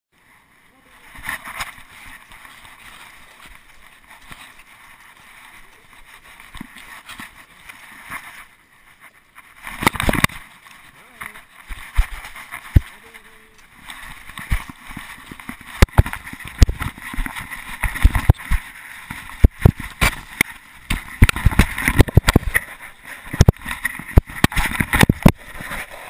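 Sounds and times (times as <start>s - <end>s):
camera handling rubbing and rustling: 1.1s - 26.0s
camera knocking and scraping: 9.6s - 10.5s, 11.4s - 12.9s, 13.8s - 26.0s.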